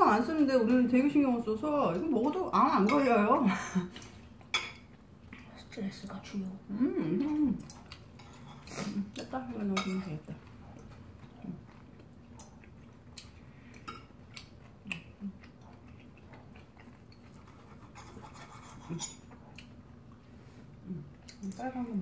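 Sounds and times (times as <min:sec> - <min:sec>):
cutlery scraping on a plate: 0:07.7 - 0:09.0, 0:17.1 - 0:19.4.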